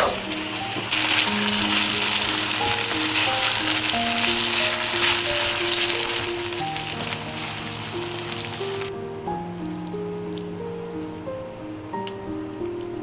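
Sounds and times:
pasta sizzling in a frying pan: 0.0 - 10.6
soft background music: 0.0 - 13.0.

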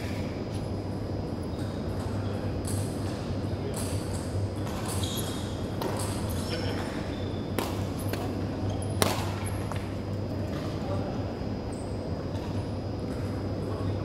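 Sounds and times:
sports hall hum: 0.0 - 14.0
sneakers squeaking on wooden floor: 4.8 - 5.5.

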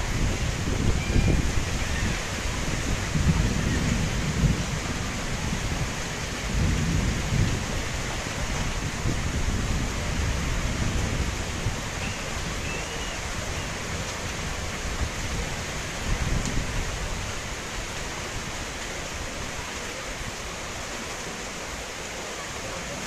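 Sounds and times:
heavy rain: 0.0 - 23.0.

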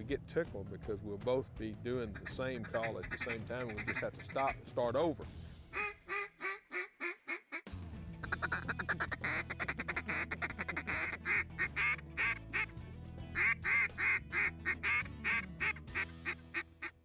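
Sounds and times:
background music with low notes: 0.0 - 6.2, 7.7 - 17.0
duck call quacks: 2.1 - 4.6, 5.7 - 12.7, 13.4 - 17.0.

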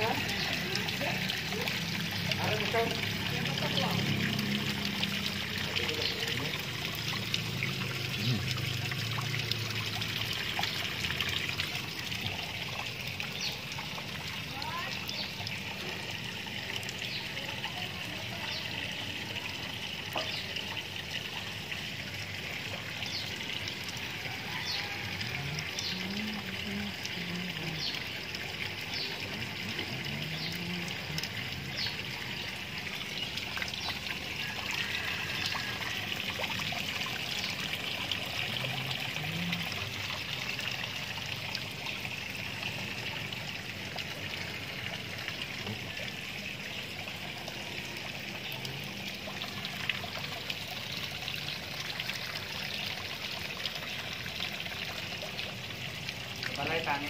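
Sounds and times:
water trickling into pond: 0.0 - 57.0.

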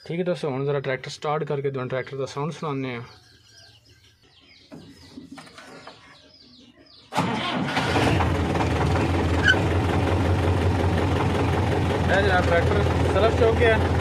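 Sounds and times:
electric starter cranking: 7.1 - 10.5
diesel tractor engine idling: 7.1 - 14.0.

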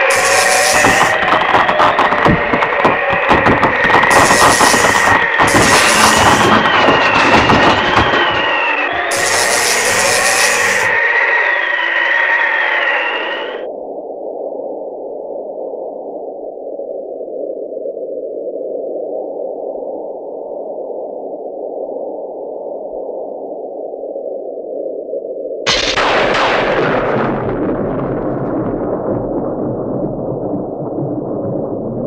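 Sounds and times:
muffled rushing noise: 0.0 - 11.0
high wavering tone: 4.1 - 7.4.

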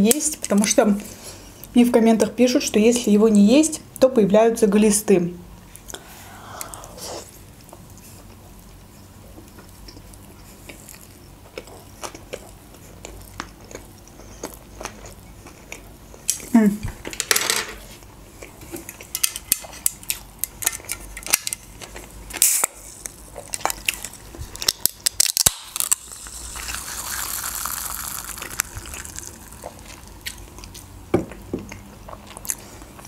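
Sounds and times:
chewing: 9.3 - 16.5, 25.8 - 30.9, 31.7 - 33.0.

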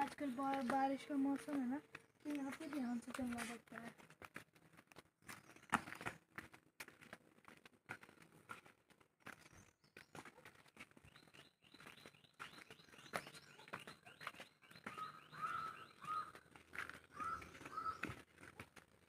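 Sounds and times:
birds chirping faintly: 0.0 - 4.0, 9.3 - 18.3
footsteps on stone path: 0.0 - 19.0.

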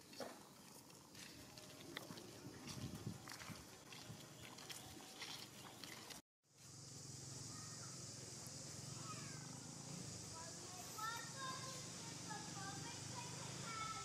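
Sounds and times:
light clicks and scuffs: 0.0 - 6.2
steady high hiss: 6.5 - 14.0.

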